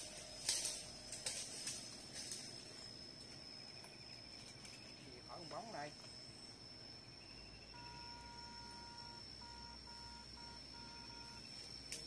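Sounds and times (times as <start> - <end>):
constant high whine: 0.0 - 12.0
faint electronic beeping: 7.2 - 12.0.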